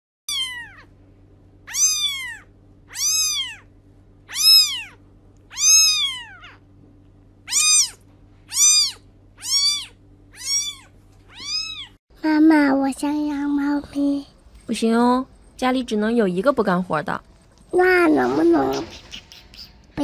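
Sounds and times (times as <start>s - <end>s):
kitten meowing: 0.3s - 0.9s, 1.6s - 3.7s, 4.3s - 6.6s, 7.4s - 12.0s.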